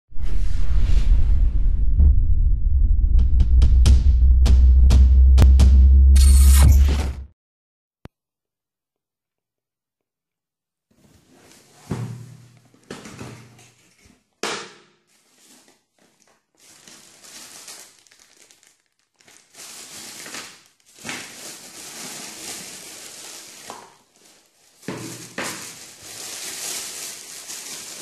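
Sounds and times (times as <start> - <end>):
tissue paper and plastic crinkling: 15.1 - 28.0.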